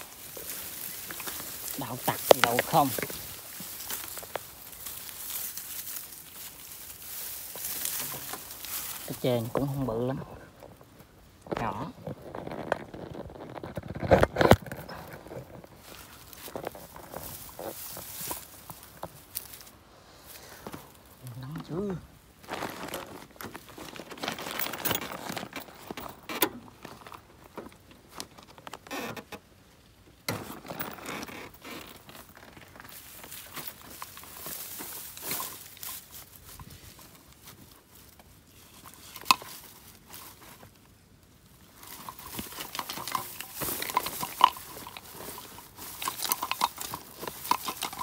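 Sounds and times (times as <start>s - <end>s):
rustling and scraping with clicks: 0.0s - 48.0s
short clicks and rustles: 41.6s - 48.0s.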